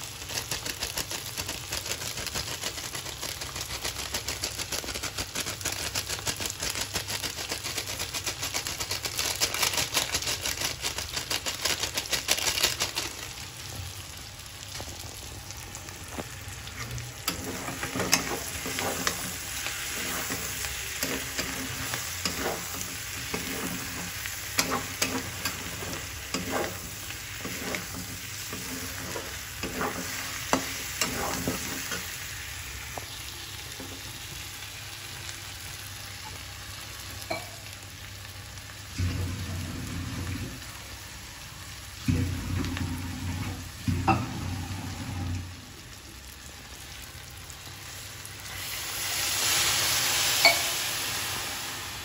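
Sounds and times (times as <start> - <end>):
food sizzling in pan: 0.0 - 52.0
metal spatula scraping pan: 17.3 - 32.1.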